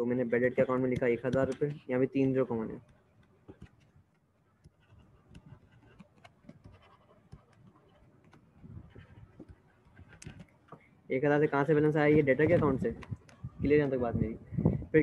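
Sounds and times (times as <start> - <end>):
stylus tapping on tablet screen: 0.6 - 1.8, 2.8 - 10.8.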